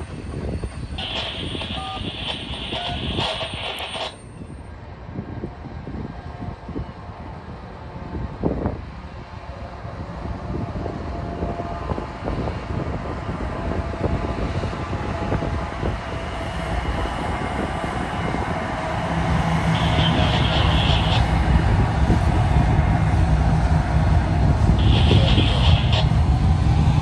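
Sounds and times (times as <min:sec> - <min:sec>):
diesel locomotive engines running: 0:00.0 - 0:27.0
train wheels rumbling on rails: 0:00.0 - 0:27.0
high squeal: 0:19.7 - 0:21.4, 0:24.8 - 0:26.2.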